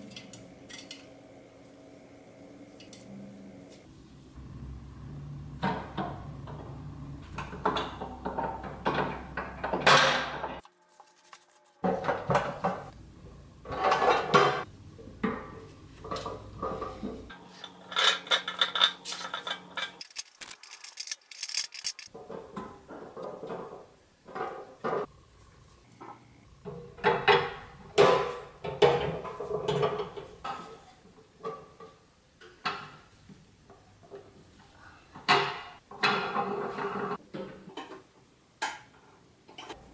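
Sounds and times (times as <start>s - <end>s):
metal toy parts clinking and scraping: 17.5s - 22.1s.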